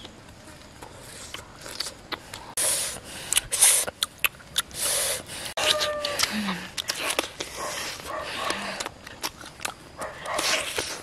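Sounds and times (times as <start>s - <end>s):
chewing: 0.8s - 2.6s, 3.3s - 5.0s, 5.6s - 11.0s
crackling hissing bursts: 1.0s - 4.0s.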